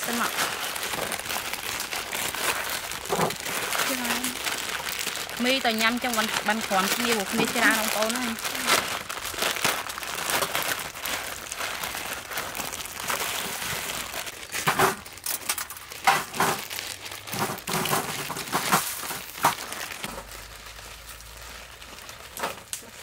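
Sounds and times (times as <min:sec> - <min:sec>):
plastic packets crinkling and tearing: 0:00.0 - 0:23.0
noodle blocks clacking on steel tray: 0:17.3 - 0:19.6.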